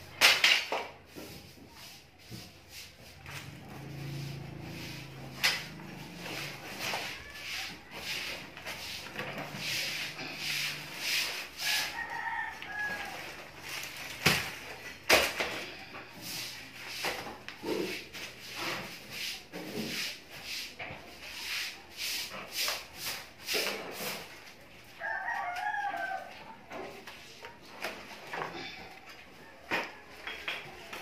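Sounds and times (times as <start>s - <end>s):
copper wire rustling and scraping: 1.1s - 19.0s
rooster crowing: 11.6s - 13.5s, 25.0s - 26.5s.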